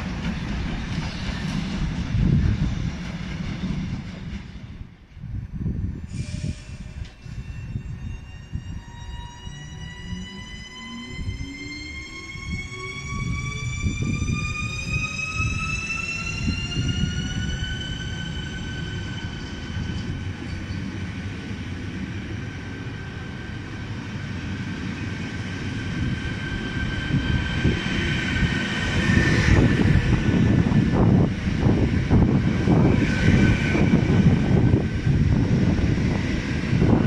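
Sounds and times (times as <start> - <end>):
electric train drive whine: 6.3 - 20.9, 21.7 - 37.0
wheels rumbling on rails: 24.0 - 37.0.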